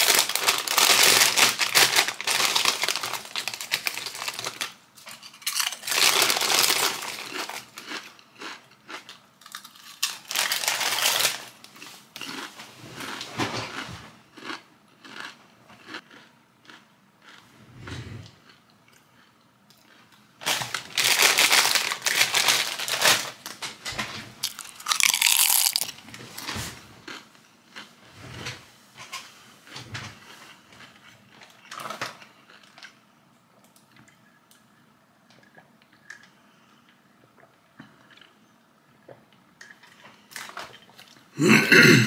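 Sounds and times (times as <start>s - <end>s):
loud crunching and crinkling: 0.0s - 17.4s, 19.8s - 23.6s, 24.4s - 27.9s.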